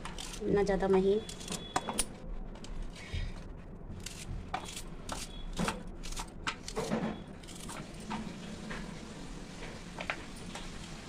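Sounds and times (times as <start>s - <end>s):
knife cutting onion: 0.0s - 1.8s, 3.9s - 7.9s.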